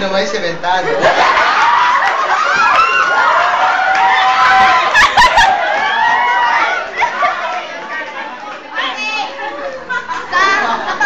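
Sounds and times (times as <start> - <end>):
young people shrieking and laughing: 1.0 - 7.8.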